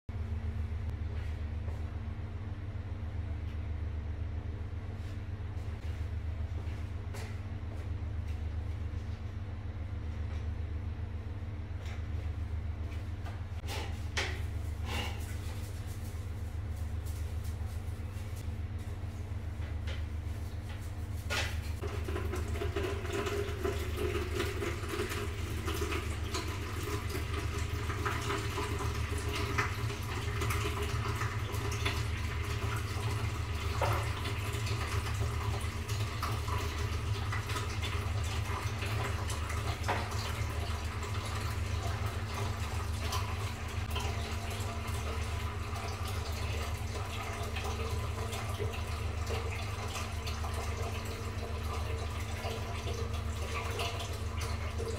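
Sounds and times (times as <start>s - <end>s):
toilet brush scrubbing: 13.6s - 18.5s, 20.3s - 54.9s
toilet water running: 20.7s - 54.9s.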